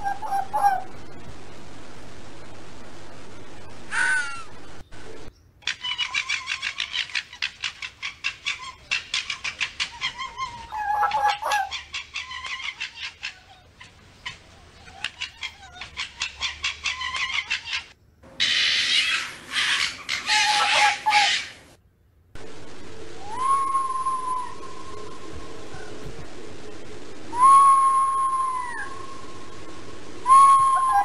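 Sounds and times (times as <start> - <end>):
fox chattering: 5.6 - 21.6.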